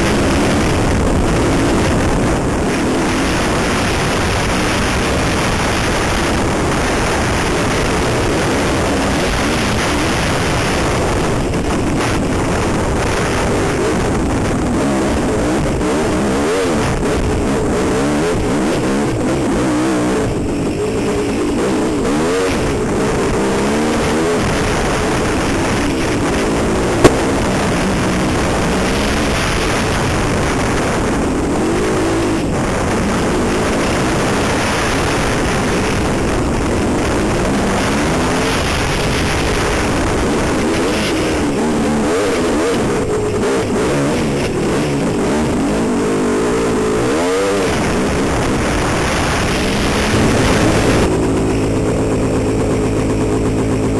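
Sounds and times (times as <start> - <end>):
dirt bike engine revving: 0.0 - 32.3, 44.7 - 53.9
sharp knock: 27.0 - 27.6.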